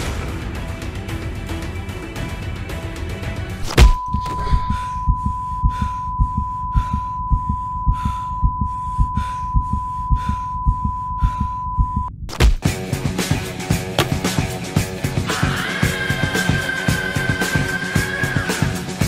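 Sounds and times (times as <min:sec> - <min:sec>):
music: 0:00.0 - 0:05.1, 0:12.6 - 0:19.0
heartbeat-like thumping: 0:03.6 - 0:12.8.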